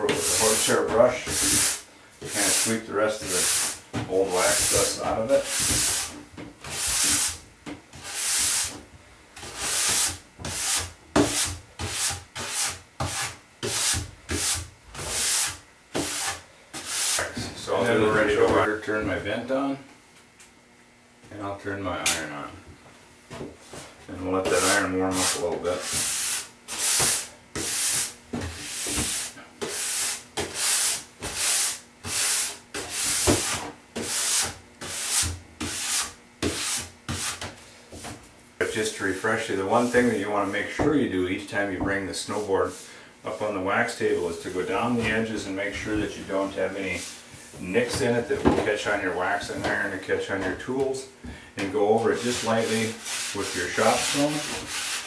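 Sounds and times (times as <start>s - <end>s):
brush scrubbing plastic base: 0.0s - 7.4s, 24.2s - 30.7s, 51.7s - 55.0s
brush strokes on snowboard base: 52.0s - 55.0s.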